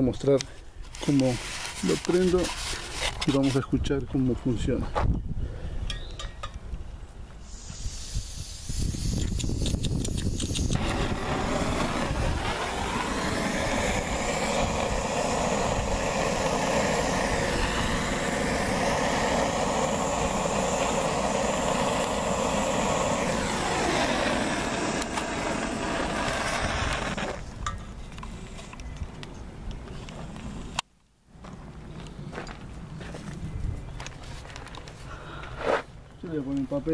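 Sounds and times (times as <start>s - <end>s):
gas blowtorch hissing: 7.4s - 27.6s.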